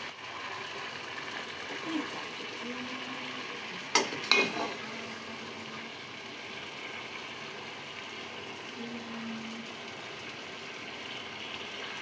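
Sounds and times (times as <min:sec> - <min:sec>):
food sizzling on stove: 0:00.0 - 0:12.0
metal ladle clanking on cookware: 0:03.9 - 0:04.8.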